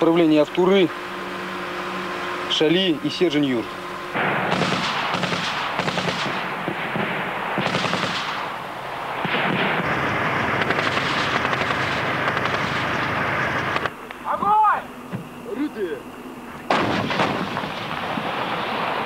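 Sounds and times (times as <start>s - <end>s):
automatic gunfire bursts: 4.4s - 6.9s, 7.6s - 8.4s, 9.3s - 13.2s.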